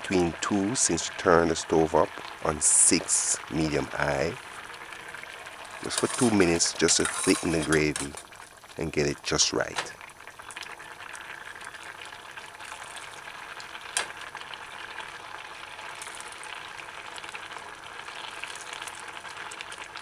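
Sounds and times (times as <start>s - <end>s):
gravy bubbling and sputtering: 0.0s - 20.0s
spoon stirring a pot: 5.6s - 8.3s.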